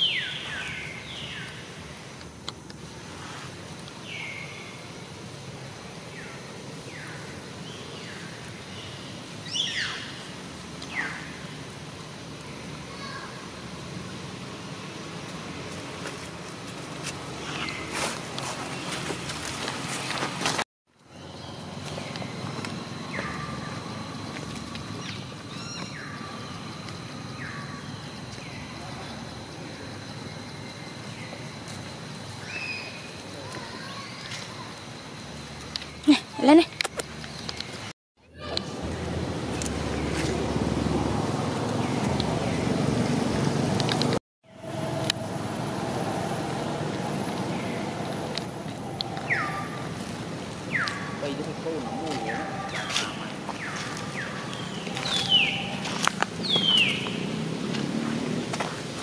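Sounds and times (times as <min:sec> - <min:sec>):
steady hiss: 0:00.0 - 0:20.6
outdoor background noise: 0:00.0 - 0:59.0
thin steady high tone: 0:44.4 - 0:56.1
short high falling calls: 0:48.7 - 0:50.0, 0:50.7 - 0:57.2.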